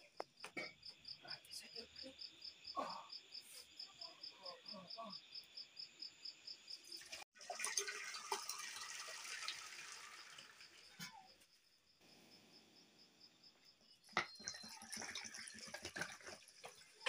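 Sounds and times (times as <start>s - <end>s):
cricket chirping: 0.0s - 7.2s, 9.6s - 15.6s
water pouring through a colander: 7.0s - 11.4s, 14.2s - 17.0s.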